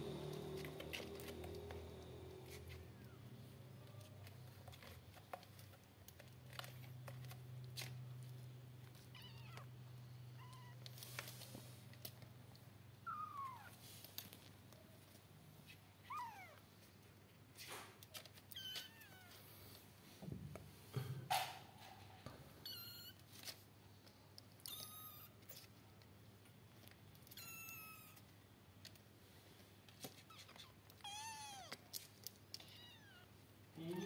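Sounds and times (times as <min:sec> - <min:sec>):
soft rustles: 0:10.4 - 0:20.9.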